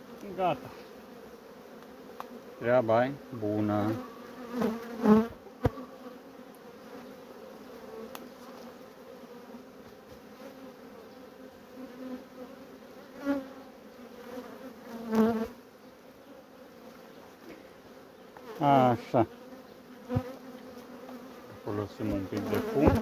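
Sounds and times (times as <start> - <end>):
bees buzzing past close by: 0.0 - 23.0
bees humming: 0.0 - 23.0.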